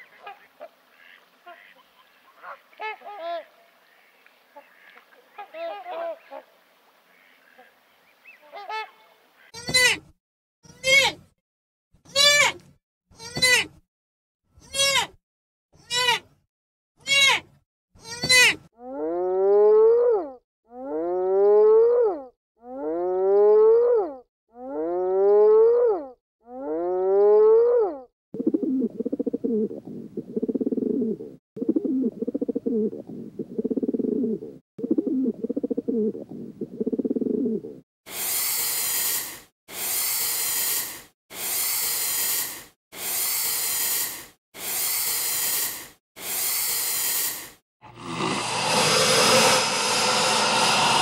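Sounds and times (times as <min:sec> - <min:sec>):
harsh animal hisses: 0:38.1 - 0:51.0
rough growling animal calls: 0:47.8 - 0:51.0
rising pitched animal calls: 0:47.9 - 0:51.0.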